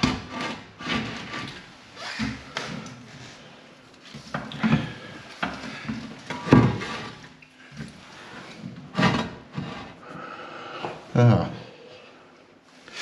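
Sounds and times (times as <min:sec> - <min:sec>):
toilet pan knocks and scrapes: 0:06.3 - 0:07.2.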